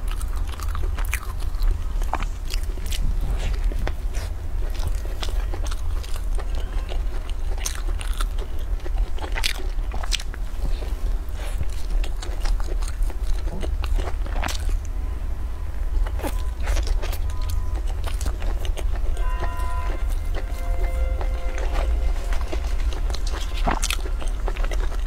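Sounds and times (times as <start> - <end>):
crunchy chewing: 0.0 - 15.0, 16.0 - 25.0
low steady hum: 0.0 - 25.0
music with steady tones: 19.2 - 25.0.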